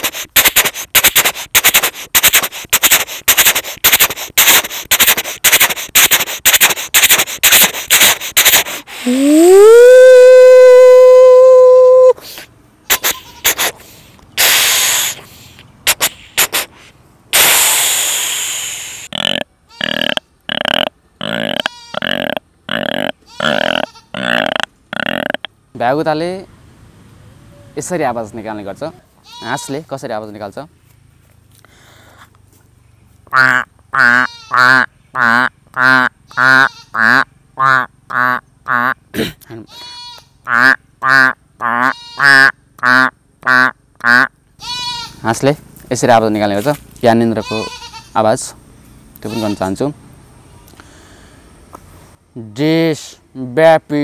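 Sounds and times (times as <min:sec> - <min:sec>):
man imitating train chuffing: 0:00.0 - 0:10.0
man imitating train hissing: 0:00.0 - 0:25.4.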